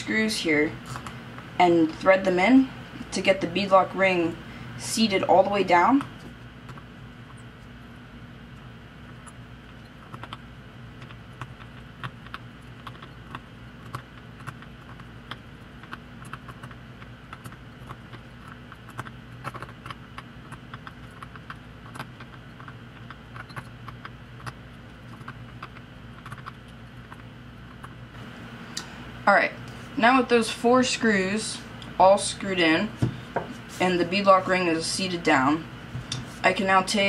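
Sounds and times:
steady low hum: 0.0s - 37.0s
hex driver clicks and ticks: 10.0s - 10.4s.

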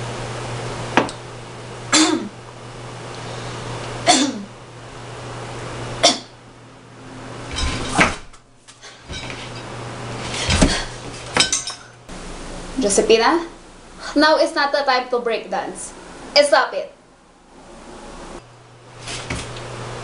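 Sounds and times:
woman coughing and choking: 1.9s - 2.4s, 4.0s - 4.5s, 6.0s - 6.4s.

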